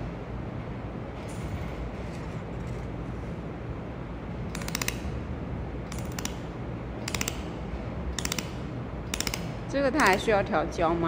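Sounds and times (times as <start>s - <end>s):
background hum: 0.0s - 11.0s.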